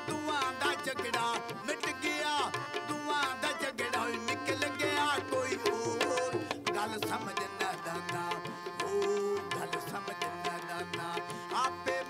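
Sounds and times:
hand drum percussion: 0.0 - 12.0
man singing folk song: 0.0 - 12.0.

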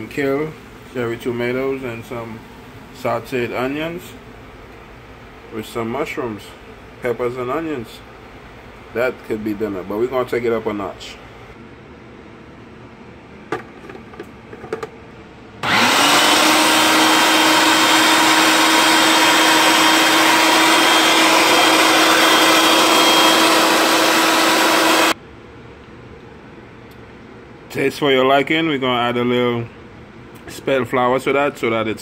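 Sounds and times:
food processor motor humming: 15.6 - 25.2.

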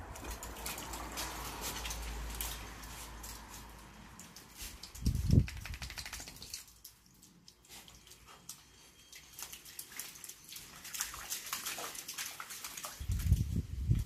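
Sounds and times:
dog paws scratching and rustling: 0.0 - 8.5
water lapping in a pool: 0.0 - 14.0.

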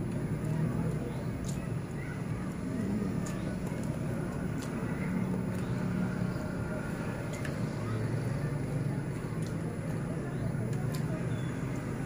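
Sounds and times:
faint clicks: 3.2 - 4.9.

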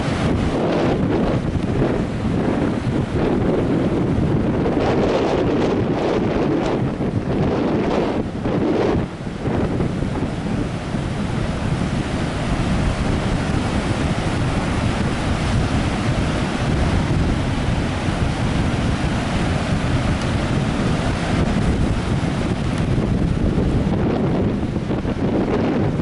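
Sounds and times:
storm surf breaking on beach: 0.0 - 26.0
wind buffeting microphone: 0.0 - 26.0.

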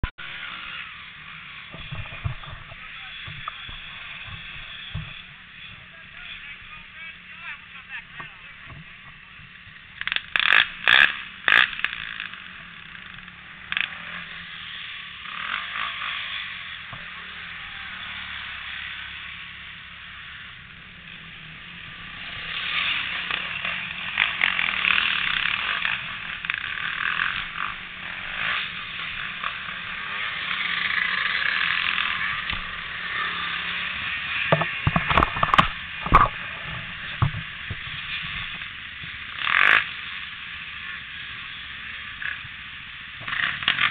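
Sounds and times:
engines idling roughly: 0.1 - 43.9
sharp knocks: 34.5 - 36.4.

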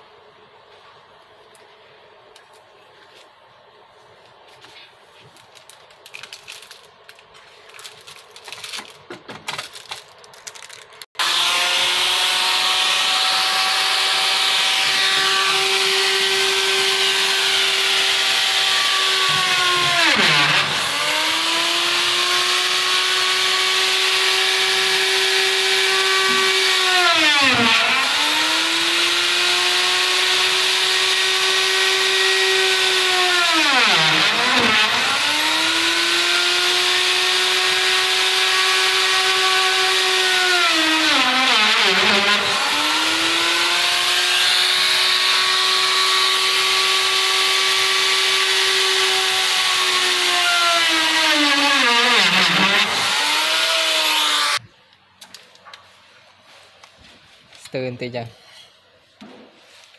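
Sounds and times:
electric router cutting wood: 11.2 - 54.6.

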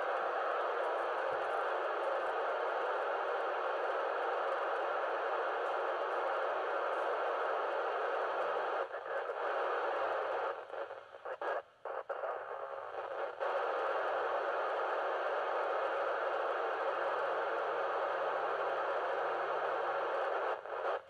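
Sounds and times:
radio static hiss: 0.0 - 21.0.

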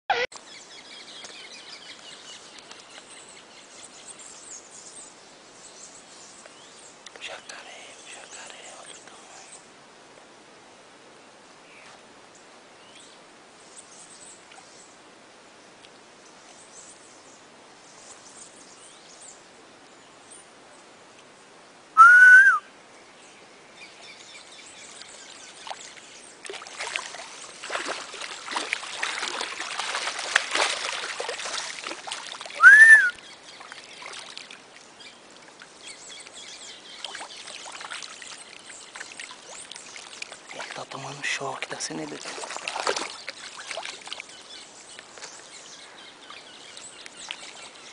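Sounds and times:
faint bird chirps: 0.1 - 9.7
rising whistled bird calls: 22.0 - 22.7, 32.5 - 33.4
water splashing: 24.9 - 45.5.

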